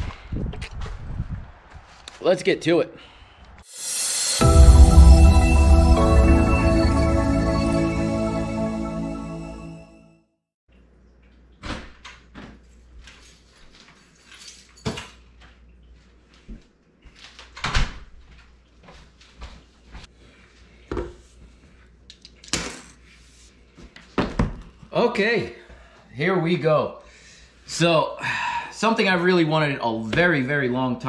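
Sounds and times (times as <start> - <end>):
electronic intro music: 3.7 - 10.3.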